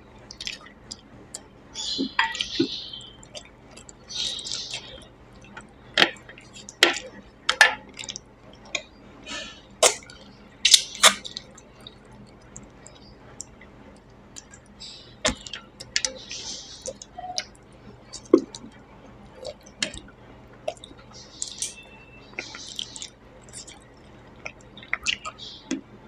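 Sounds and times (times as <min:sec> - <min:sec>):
wet lip smacks while chewing: 0:00.3 - 0:01.4, 0:22.4 - 0:25.4.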